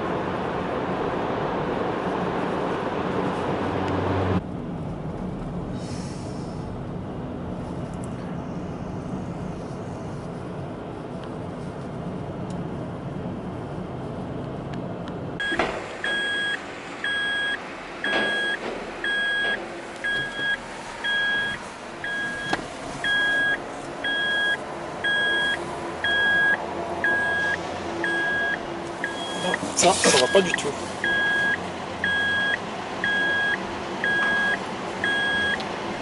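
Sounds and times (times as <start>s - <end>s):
low vehicle noise: 0.0s - 36.0s
road noise inside a moving car: 0.0s - 36.0s
electronic warning beeps: 15.4s - 35.6s.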